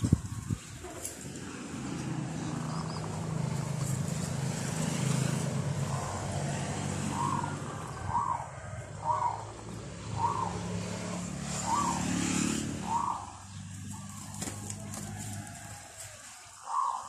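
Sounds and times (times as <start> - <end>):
vehicle engine passing by: 0.0 - 16.4
bird calls: 5.8 - 14.9, 16.5 - 17.0.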